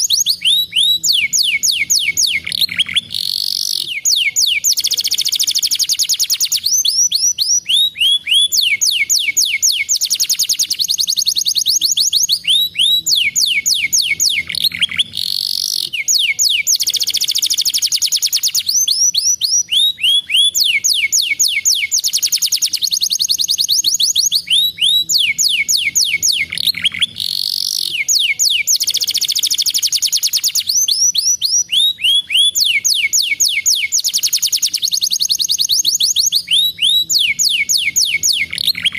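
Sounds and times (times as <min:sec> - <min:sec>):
canary singing trills: 0:00.0 - 0:38.9.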